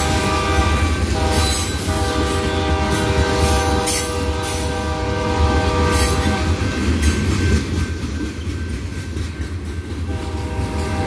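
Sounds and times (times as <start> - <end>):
locomotive horn: 0.0 - 6.7, 10.1 - 11.0.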